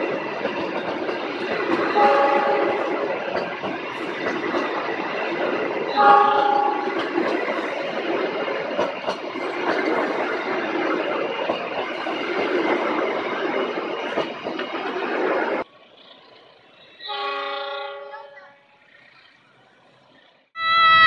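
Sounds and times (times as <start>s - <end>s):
train wheels on rails: 0.0s - 21.0s
faint train horn: 1.9s - 2.9s, 5.9s - 7.0s, 16.9s - 18.9s, 20.6s - 21.0s.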